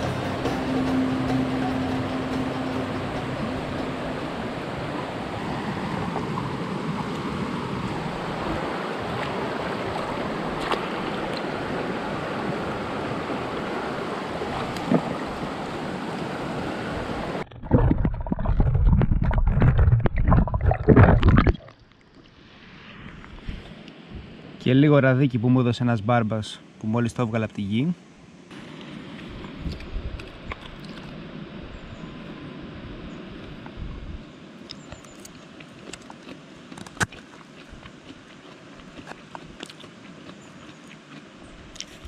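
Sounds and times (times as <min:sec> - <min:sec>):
river water over stones: 0:00.0 - 0:25.0, 0:28.1 - 0:42.0
underwater sloshing and bubbling: 0:03.4 - 0:24.6.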